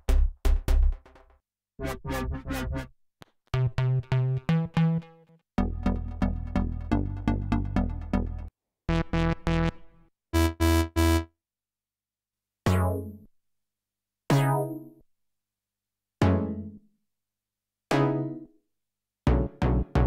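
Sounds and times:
synth bass notes: 0:01.8 - 0:02.9, 0:03.6 - 0:11.3.

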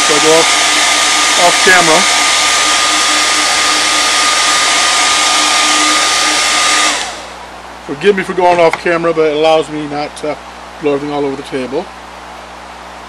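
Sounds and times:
hair dryer blowing with whine: 0:00.0 - 0:07.5.

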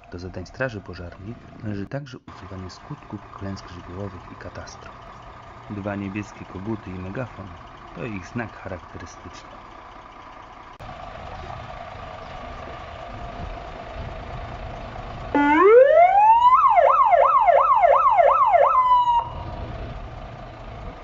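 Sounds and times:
truck engine idling: 0:00.0 - 0:21.0
fire engine siren wailing: 0:09.6 - 0:21.0.

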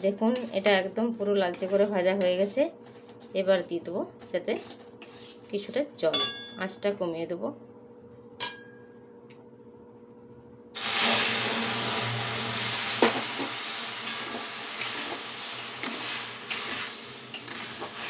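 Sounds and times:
metal spatula scraping pan: 0:00.1 - 0:03.2, 0:13.0 - 0:18.0
water sizzling in hot pan: 0:10.8 - 0:18.0.

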